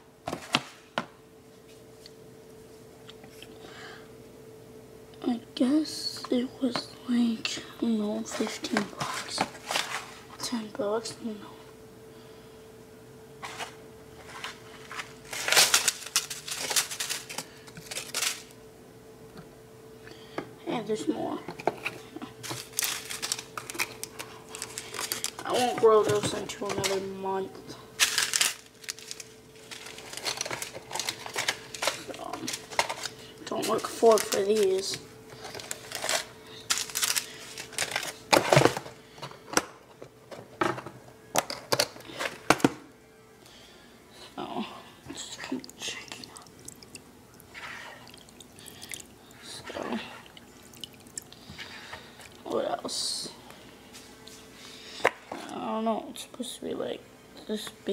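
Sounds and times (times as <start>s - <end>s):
paper rustling and crinkling: 8.3s - 10.4s, 13.4s - 18.5s, 21.6s - 27.1s, 28.0s - 39.0s.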